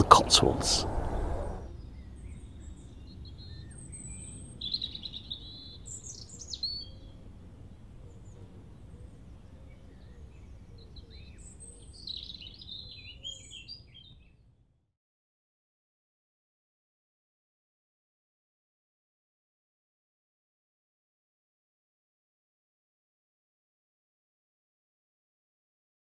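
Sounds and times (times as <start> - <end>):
low steady background rumble: 0.0 - 1.6.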